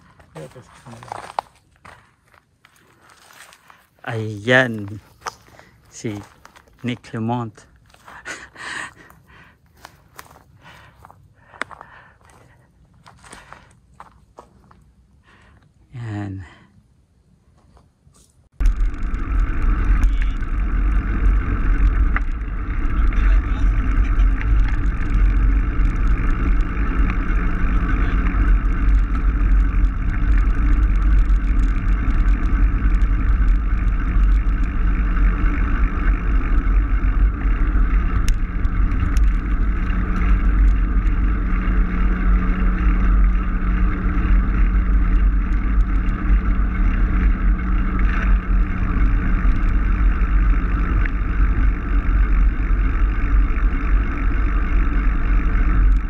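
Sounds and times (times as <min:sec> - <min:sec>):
bicycle tyre rolling noise: 0:00.0 - 0:56.0
faint steady hum: 0:00.0 - 0:56.0
wind rumble on microphone: 0:18.6 - 0:56.0.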